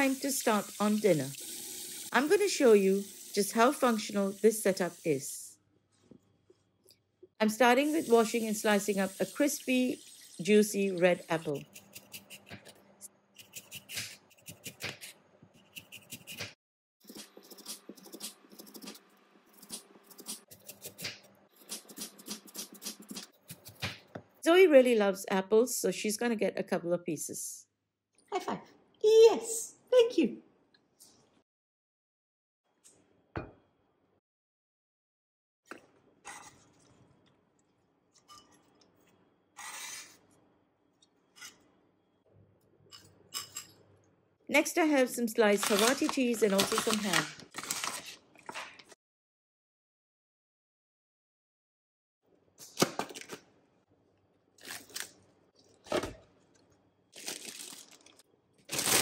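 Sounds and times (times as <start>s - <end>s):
knife slicing apple on board: 13.4s - 16.6s.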